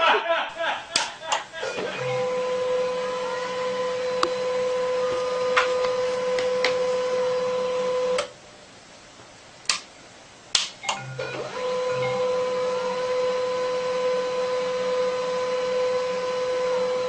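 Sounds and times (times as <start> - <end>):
printer whirring: 1.0 - 8.3, 10.9 - 17.0.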